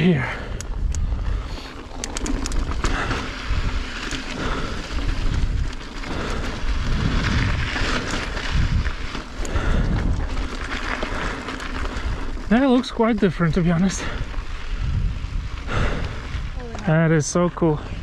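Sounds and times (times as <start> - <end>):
bike tyres on rock: 0.0 - 18.0
bike clicks and rattles: 0.2 - 18.0
wind on microphone: 2.4 - 10.6, 14.1 - 16.8.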